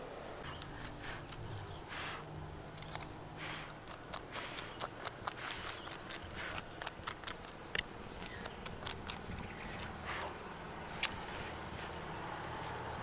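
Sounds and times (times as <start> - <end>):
fingers picking wax honeycomb: 2.7 - 10.3.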